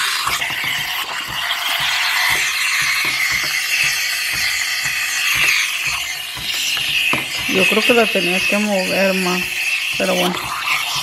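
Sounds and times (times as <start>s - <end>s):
steam wand hissing: 0.0s - 11.0s.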